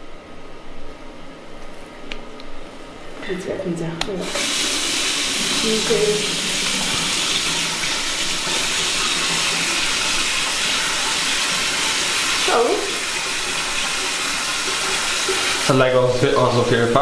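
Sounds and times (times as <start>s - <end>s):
water running from tap: 4.2s - 17.0s.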